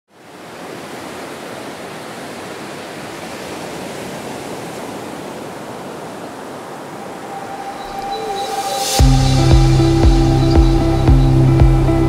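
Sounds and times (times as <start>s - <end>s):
steady rushing noise: 6.6s - 12.0s.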